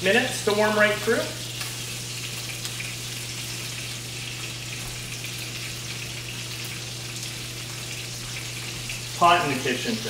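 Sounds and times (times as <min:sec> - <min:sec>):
meat sizzling in a skillet: 0:00.0 - 0:10.0.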